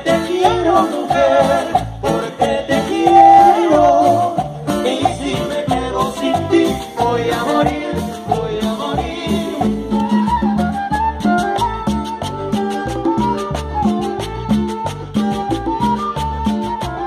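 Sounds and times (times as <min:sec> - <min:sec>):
acoustic guitar: 0:00.0 - 0:17.0
congas: 0:00.0 - 0:17.0
double bass: 0:00.0 - 0:17.0
live band playing dance music: 0:00.0 - 0:17.0
flute: 0:02.8 - 0:04.6, 0:09.3 - 0:17.0.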